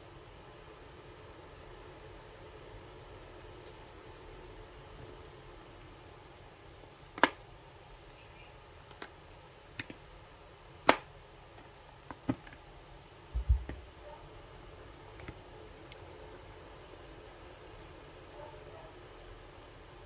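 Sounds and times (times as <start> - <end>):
dull low thump: 13.4 - 13.8.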